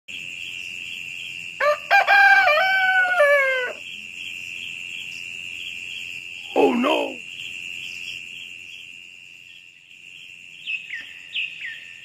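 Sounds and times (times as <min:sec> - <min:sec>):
rooster crowing: 0:01.6 - 0:03.8.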